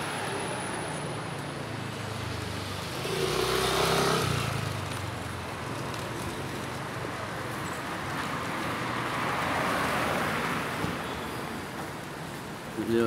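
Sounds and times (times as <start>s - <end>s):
street traffic noise: 0.0s - 13.0s
motor vehicle passing close: 3.0s - 5.0s.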